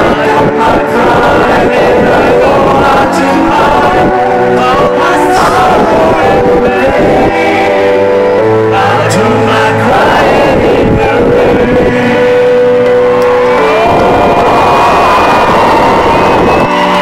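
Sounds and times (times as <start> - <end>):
male singer with live band: 0.0 - 12.6.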